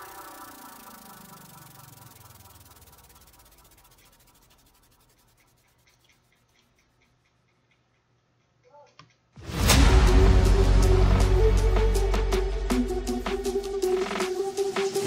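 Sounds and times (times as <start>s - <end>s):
falling pitch sweep: 0.0s - 5.0s
electronic music: 0.0s - 5.7s, 9.4s - 15.0s.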